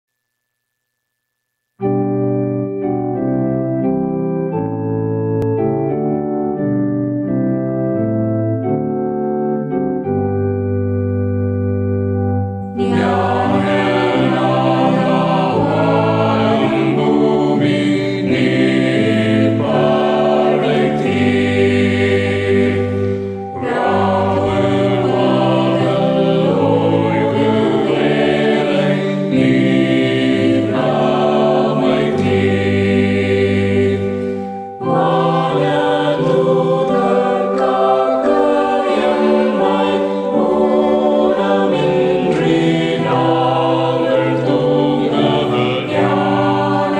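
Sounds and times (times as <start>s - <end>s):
mixed choir singing a hymn: 12.8s - 46.9s.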